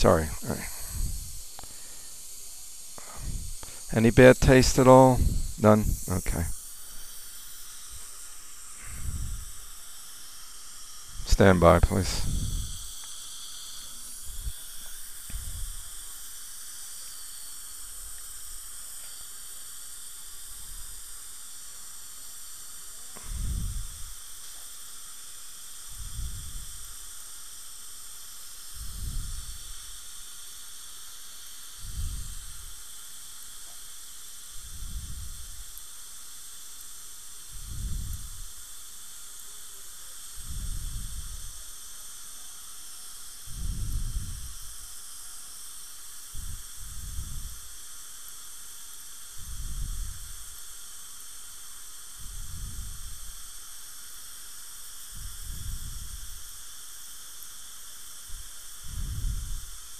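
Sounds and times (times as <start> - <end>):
dental equipment hiss: 0.0 - 59.9
faint high whine: 0.0 - 59.9
soft low puff: 8.0 - 9.7, 23.2 - 24.1.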